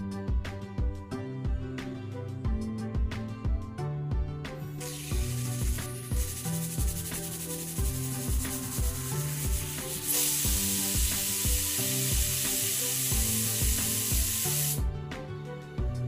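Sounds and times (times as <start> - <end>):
music with steady beat: 0.0 - 16.0
pressure cooker whistle hissing: 4.8 - 14.8.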